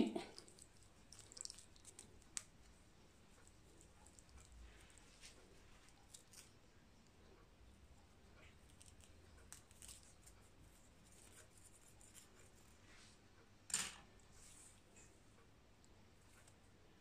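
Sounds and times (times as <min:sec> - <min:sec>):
faint rustling of hair: 0:00.0 - 0:07.5, 0:08.2 - 0:17.0
scrape: 0:11.2 - 0:13.2, 0:14.3 - 0:15.1.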